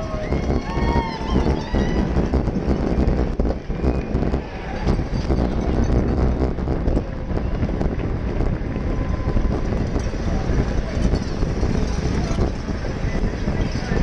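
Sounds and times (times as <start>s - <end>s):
low rumble of road noise: 0.0s - 14.0s
wind rushing over microphone: 0.0s - 14.0s
small rattles and knocks: 9.4s - 14.0s.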